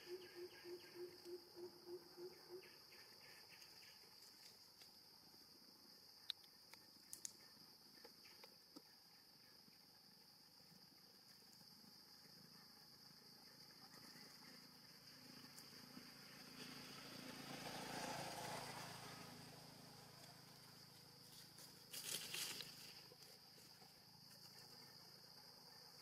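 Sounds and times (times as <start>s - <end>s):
crackling clicks: 6.2s - 7.4s.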